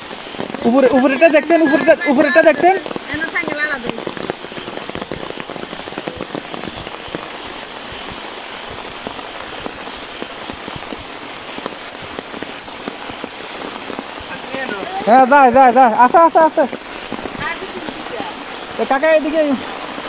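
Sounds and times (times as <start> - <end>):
steady rain falling: 0.0 - 20.0.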